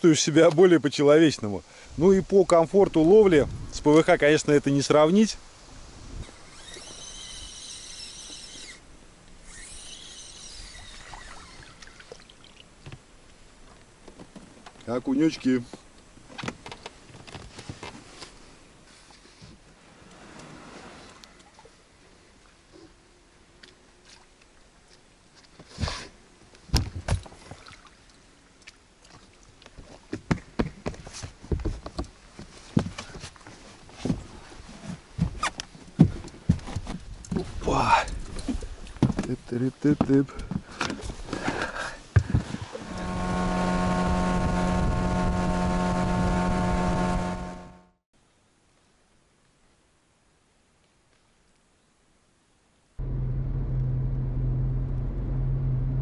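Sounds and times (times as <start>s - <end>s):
fishing reel whirring: 6.3s - 8.8s, 9.4s - 11.8s
water lapping at hull: 21.1s - 26.2s, 27.0s - 30.1s.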